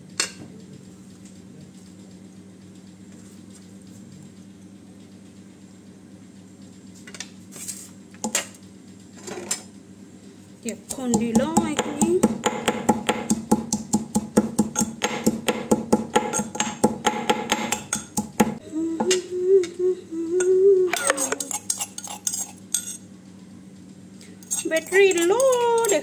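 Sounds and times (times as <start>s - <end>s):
pestle pounding in mortar: 10.9s - 18.6s
pestle scraping: 10.9s - 18.6s, 21.0s - 23.0s, 24.4s - 26.0s
person humming a tune: 11.0s - 12.3s, 18.4s - 21.6s.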